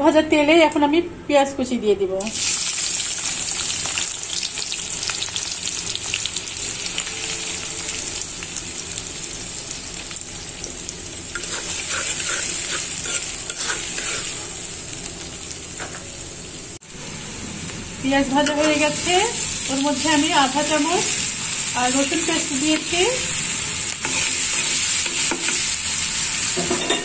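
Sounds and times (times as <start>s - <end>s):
onion sizzling in hot oil: 2.2s - 27.0s
stirring scrapes: 11.4s - 14.5s.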